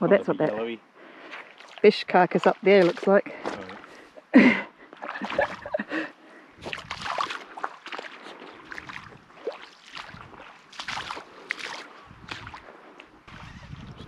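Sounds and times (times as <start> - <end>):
water sloshing and splashing: 1.0 - 14.0
loud splash: 5.1 - 5.7, 6.6 - 12.6.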